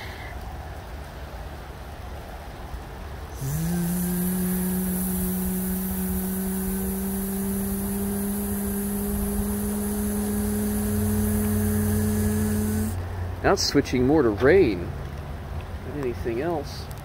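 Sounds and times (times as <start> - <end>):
hiss: 0.0 - 0.4, 3.3 - 13.0
motor humming: 3.4 - 13.0.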